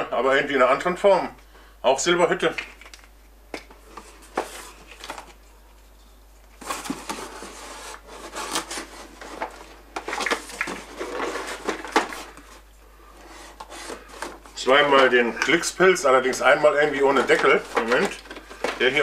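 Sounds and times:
cardboard rustling and scraping: 3.8 - 5.4, 6.6 - 19.0.

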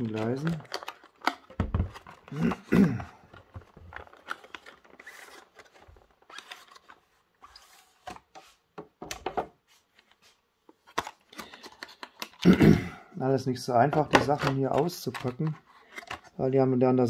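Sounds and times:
plastic rustling and scraping: 0.0 - 8.7, 13.8 - 16.4.

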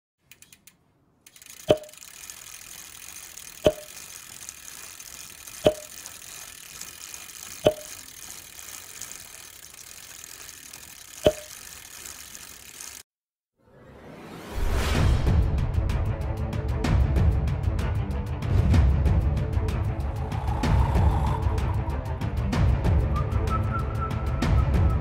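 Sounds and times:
mechanical clicks with ring: 0.2 - 13.0.

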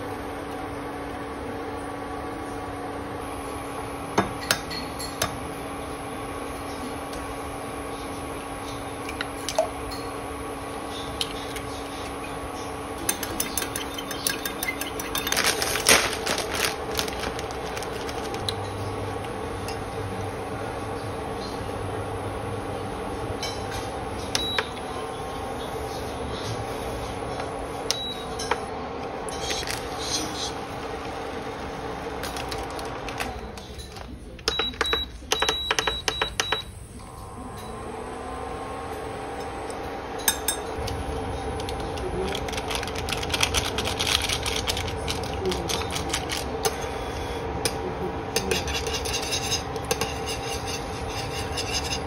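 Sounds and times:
steady background hum: 0.0 - 52.0
whisk clinking against glass jug: 13.1 - 15.5.

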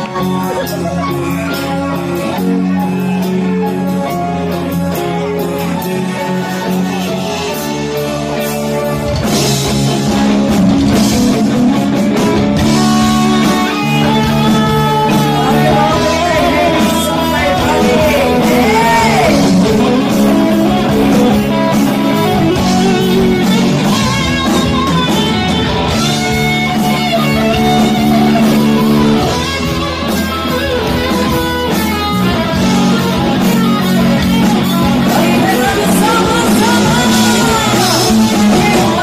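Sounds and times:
live rock band playing: 0.0 - 39.0
woman singing: 12.8 - 21.3, 35.0 - 39.0.

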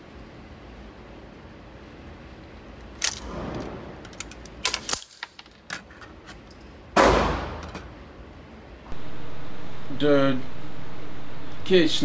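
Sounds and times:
metallic clicks of handgun handling: 4.0 - 6.6
gunshot with short echo: 7.0 - 7.6.

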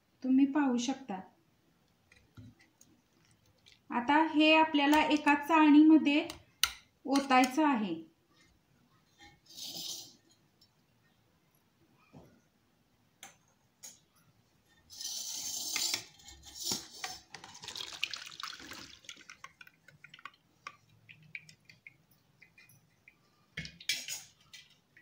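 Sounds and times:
dripping: 2.5 - 3.9, 17.2 - 24.3
syrup splashing into strainer: 16.8 - 21.8.

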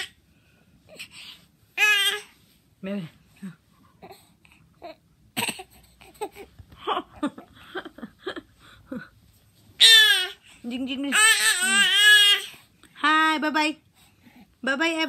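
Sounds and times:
infant cooing and babbling: 1.8 - 2.3, 9.8 - 10.5, 11.1 - 12.6
infant squealing: 9.8 - 10.4, 11.2 - 12.6.

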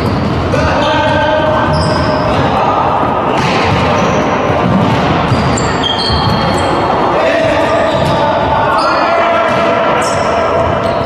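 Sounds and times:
players calling on court: 0.0 - 11.0
volleyball ball hits: 3.3 - 5.5
short high squeaks: 5.3 - 6.8.

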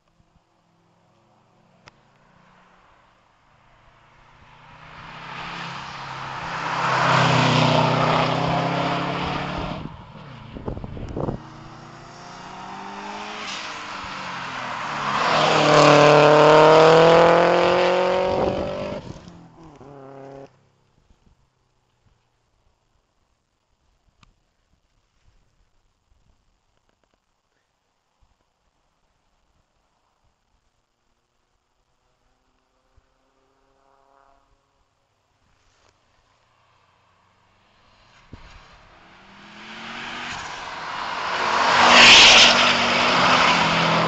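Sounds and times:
rally car engine at high revs: 11.0 - 20.5, 39.2 - 44.0.

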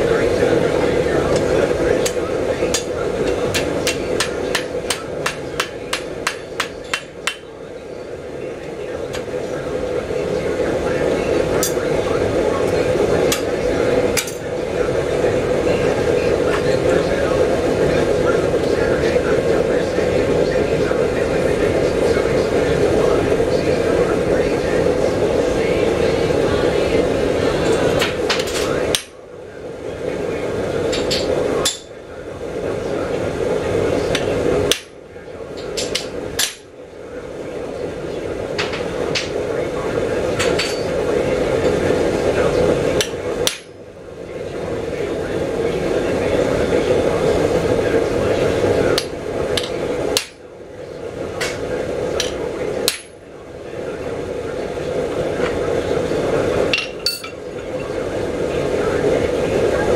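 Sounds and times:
steady hum: 0.0 - 59.9
hammer striking chisel on metal: 3.5 - 7.5.

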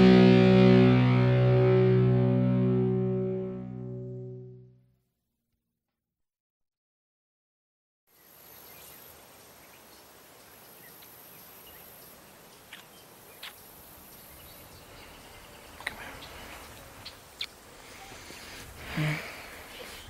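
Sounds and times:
open-air hiss: 8.1 - 20.0.

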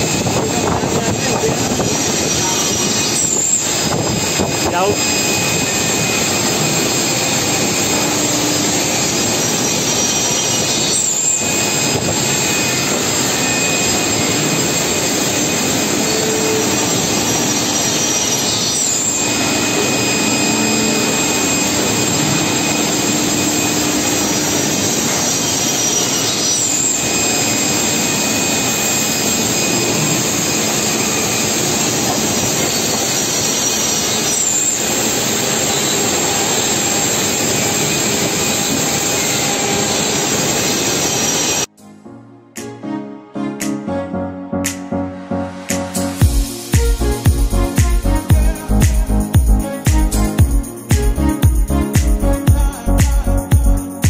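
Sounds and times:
panel saw cutting wood: 5.1 - 34.8.

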